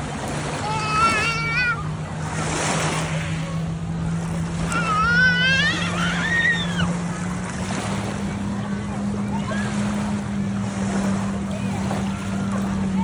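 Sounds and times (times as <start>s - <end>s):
lake water lapping and sloshing: 0.0s - 13.0s
motorboat engine hum: 0.0s - 13.0s
small child crying out: 0.6s - 1.9s, 4.7s - 6.9s.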